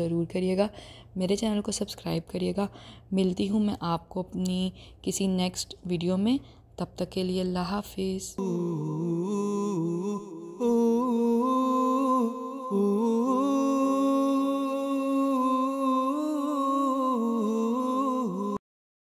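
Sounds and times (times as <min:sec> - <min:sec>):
person humming: 0:08.4 - 0:18.6.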